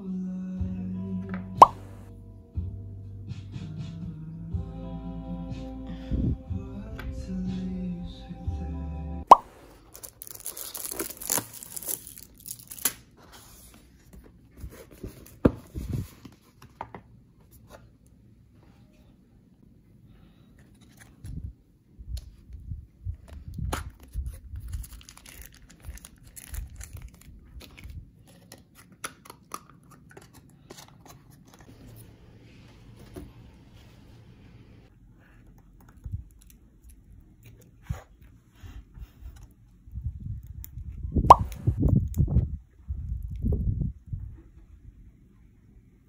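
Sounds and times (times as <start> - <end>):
cardboard rustling and tearing: 9.6 - 16.5, 23.9 - 29.0.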